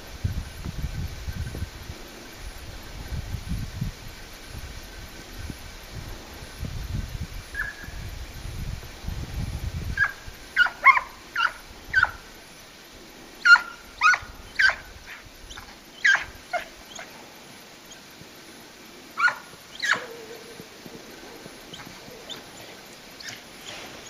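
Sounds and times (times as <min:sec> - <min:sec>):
hound baying: 0:10.0 - 0:12.2, 0:13.4 - 0:17.1, 0:19.2 - 0:23.4.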